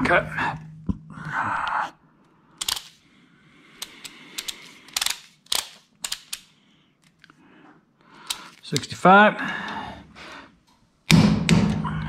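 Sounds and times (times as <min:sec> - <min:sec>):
torque wrench clicks: 0:02.6 - 0:03.0, 0:03.8 - 0:06.5.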